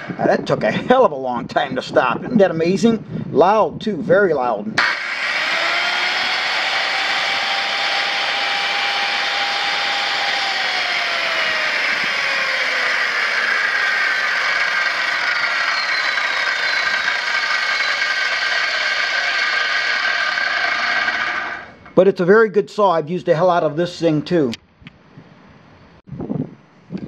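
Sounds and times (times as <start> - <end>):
circular saw motor whining: 4.8 - 22.0.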